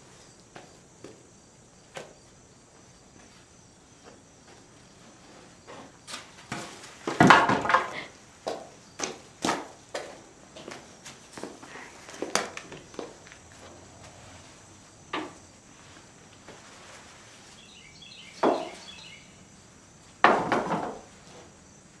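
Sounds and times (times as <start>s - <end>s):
wooden knocks and thumps: 6.5s - 8.7s, 18.4s - 18.8s, 20.2s - 21.1s.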